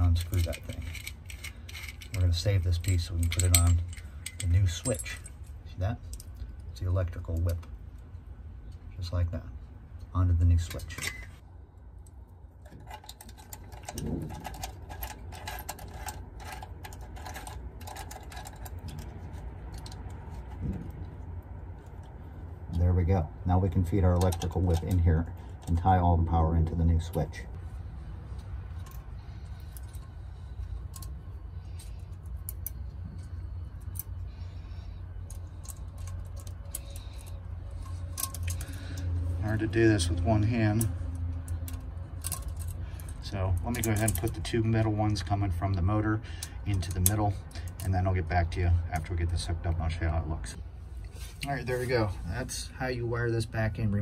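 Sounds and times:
steady low rumble: 0:00.0 - 0:53.9
small metal clicks and ticks: 0:12.0 - 0:22.2, 0:28.3 - 0:48.0.

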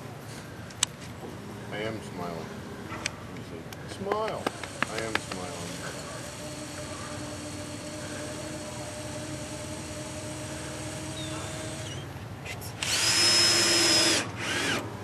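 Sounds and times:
cordless drill whining: 0:04.4 - 0:12.1, 0:12.8 - 0:14.8.

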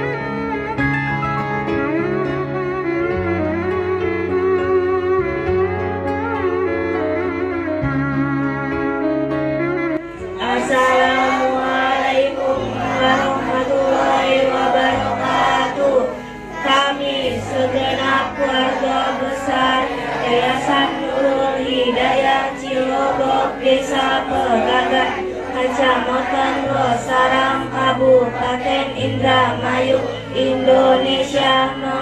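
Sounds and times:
instrumental music: 0:00.0 - 0:32.0
children singing together: 0:10.4 - 0:32.0.

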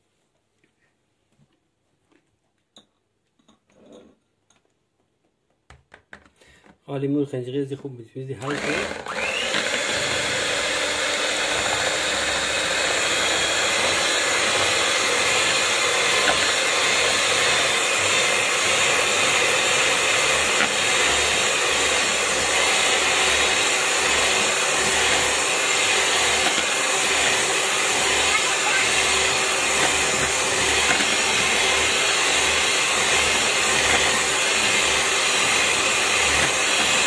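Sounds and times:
electric mixer whisking: 0:08.4 - 0:37.0.

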